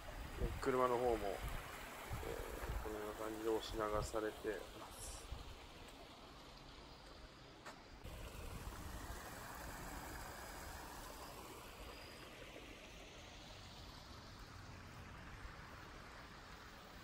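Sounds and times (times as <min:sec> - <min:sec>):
shallow water running in channel: 0:00.0 - 0:17.0.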